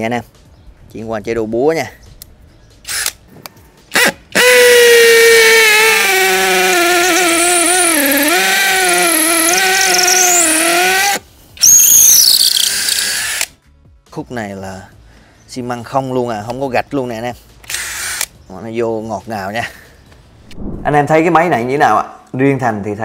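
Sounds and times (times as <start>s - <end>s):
drill clicks: 2.9s - 3.2s, 6.5s - 13.5s, 17.6s - 18.3s
hammer drill drilling into concrete: 4.0s - 13.5s, 17.7s - 18.3s.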